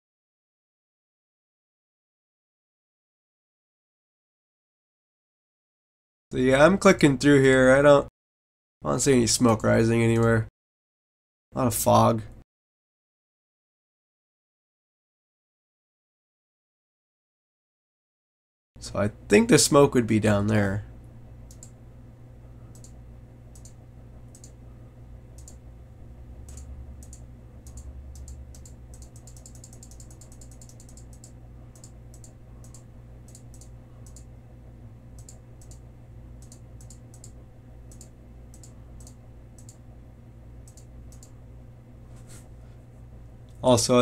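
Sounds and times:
steady low hum: 0:08.8 - 0:10.5, 0:18.8 - 0:44.0
computer mouse clicking: 0:21.5 - 0:21.8, 0:22.7 - 0:24.6, 0:25.4 - 0:25.6, 0:26.4 - 0:34.3, 0:35.2 - 0:35.8, 0:36.4 - 0:39.8, 0:40.6 - 0:41.4.

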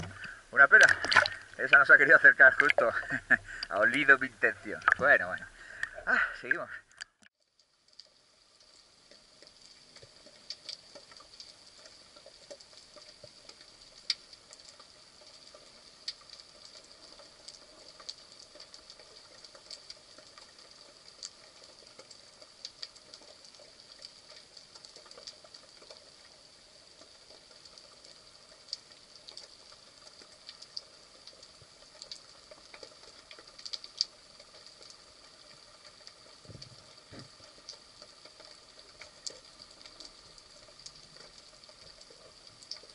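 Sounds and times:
sharp clicks and crackles: 0:00.0 - 0:05.2, 0:05.8 - 0:42.9
faint underwater hiss: 0:00.0 - 0:07.0.

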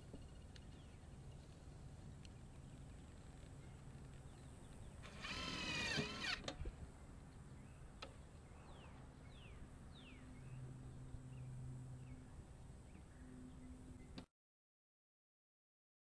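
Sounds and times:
cordless drill motor whine: 0:05.0 - 0:06.6.

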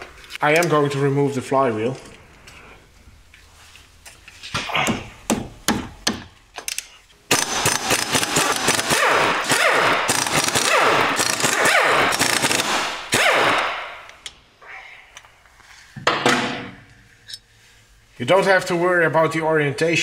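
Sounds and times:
impact wrench rattling: 0:07.3 - 0:12.8.

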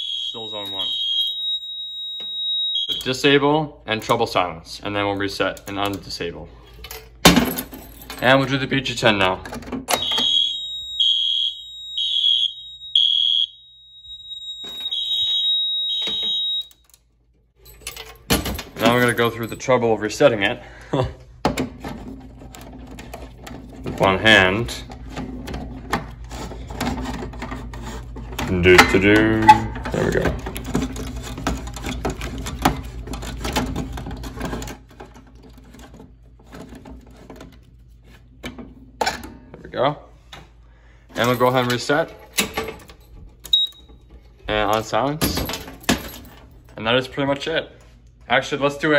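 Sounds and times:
steady high tone: 0:00.0 - 0:03.0
fire alarm horn blasts: 0:00.0 - 0:03.2, 0:10.0 - 0:16.8, 0:43.5 - 0:43.8.

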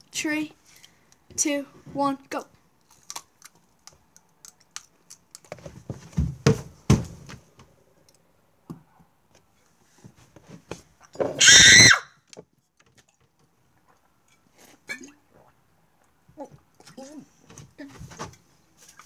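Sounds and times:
heavy thumps and bumps: 0:05.8 - 0:07.7
girl shrieking: 0:11.4 - 0:12.1.

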